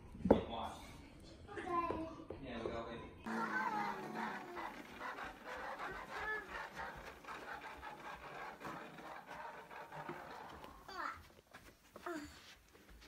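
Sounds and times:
toy truck scraping on carpet: 0:03.3 - 0:11.2.

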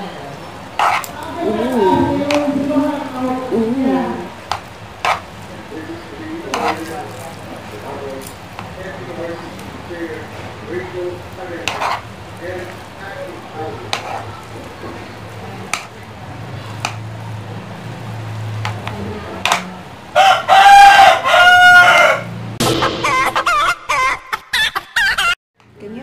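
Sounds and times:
chopsticks clicking against pan: 0:16.8 - 0:17.1, 0:18.6 - 0:19.7
rooster crowing: 0:20.1 - 0:22.4.

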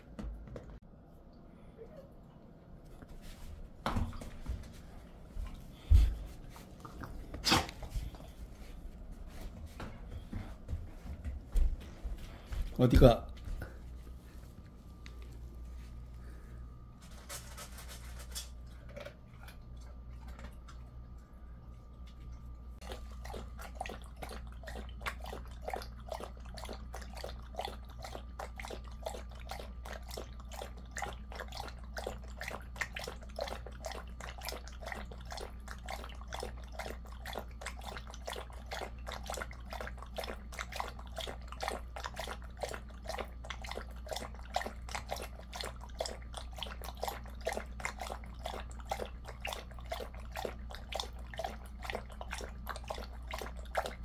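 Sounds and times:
dog lapping water from metal bowl: 0:17.1 - 0:54.0.

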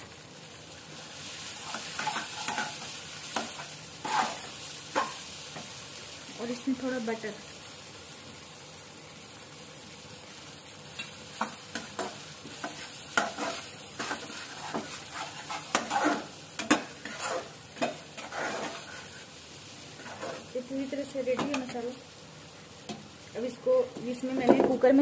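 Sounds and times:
masala sizzling in oil: 0:00.0 - 0:25.0
metal spatula scraping pan: 0:01.6 - 0:05.2, 0:11.4 - 0:19.3, 0:20.0 - 0:20.5.

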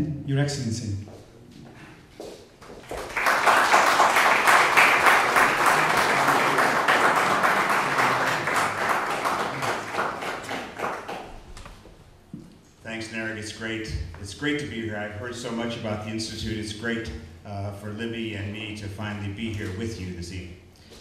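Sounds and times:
audience applauding: 0:02.7 - 0:11.7.

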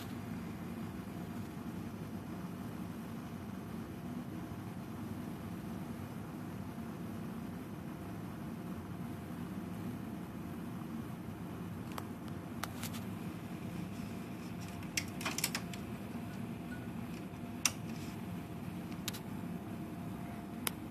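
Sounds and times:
low hum: 0:07.1 - 0:20.9.

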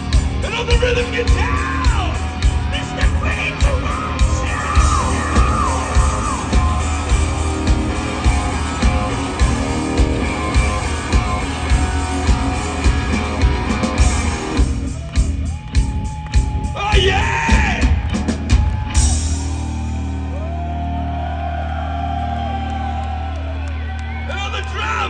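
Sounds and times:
live hard rock band: 0:00.0 - 0:20.3
voices yelling: 0:00.5 - 0:07.4.

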